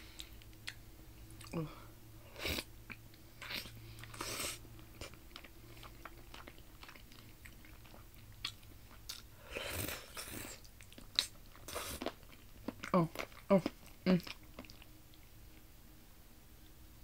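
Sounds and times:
person chewing: 2.3 - 15.3.

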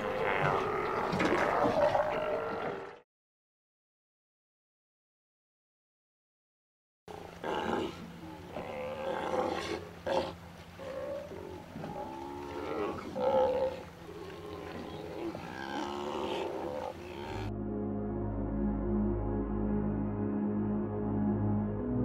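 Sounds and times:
sea lions calling: 7.3 - 17.5
low hum: 16.8 - 22.0.

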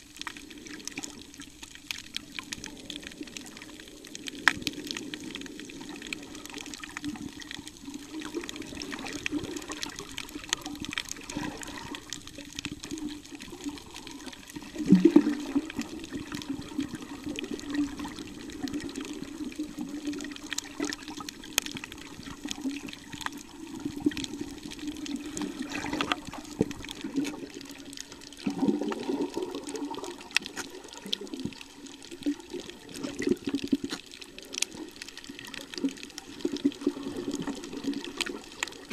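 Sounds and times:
faint underwater clicks: 0.0 - 38.9
underwater water sloshing: 0.0 - 38.9.

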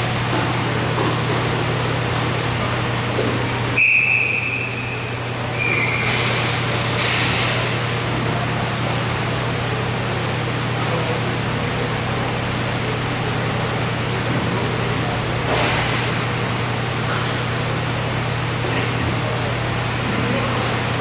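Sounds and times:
referee whistle: 3.8 - 6.1.

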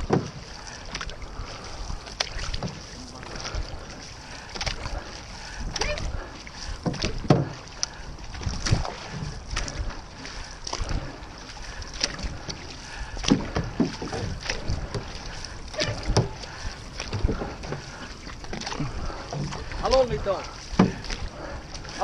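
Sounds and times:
paddles splashing in water: 0.0 - 22.0
wind on microphone: 4.7 - 19.9.

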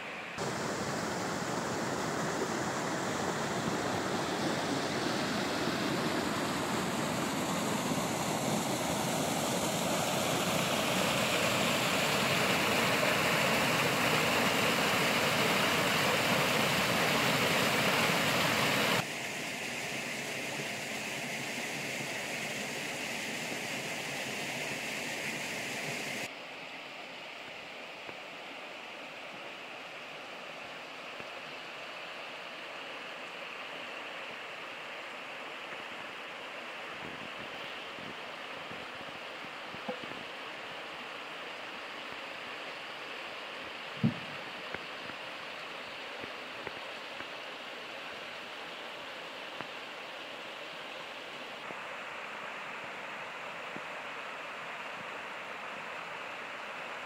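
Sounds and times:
river water rushing: 0.0 - 26.4.

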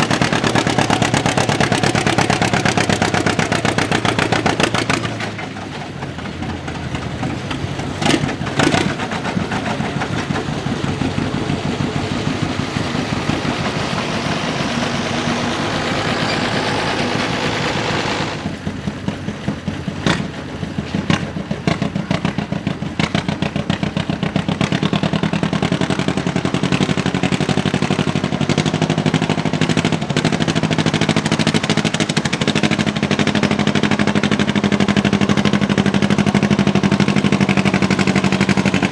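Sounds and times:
sharp engine bangs: 0.0 - 25.7
tractor engine pulsing under load: 0.0 - 38.9.

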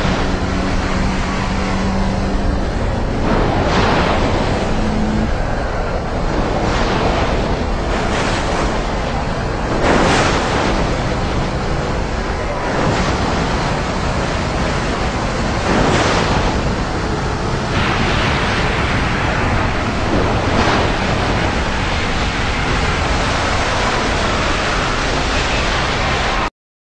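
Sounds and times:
racing trucks engine and tyre rush: 0.0 - 26.5.

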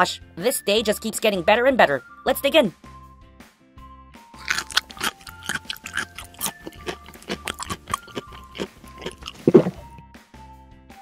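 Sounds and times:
light background music: 0.0 - 11.0
crunching ice cream cone bites: 4.4 - 9.9.

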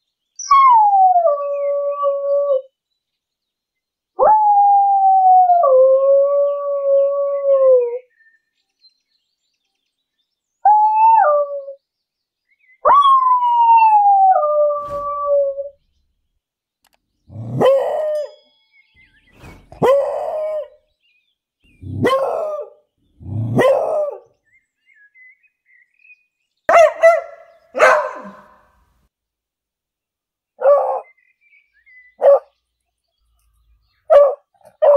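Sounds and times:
dog baying and howling: 12.8 - 15.8, 17.3 - 18.4, 19.8 - 20.8, 21.8 - 24.2, 26.7 - 28.6
dog barking sharply: 26.7 - 28.6.

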